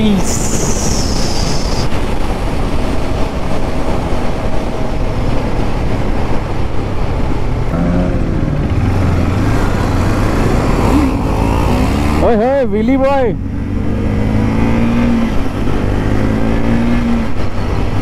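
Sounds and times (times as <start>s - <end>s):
wind rushing over microphone: 0.0s - 12.2s.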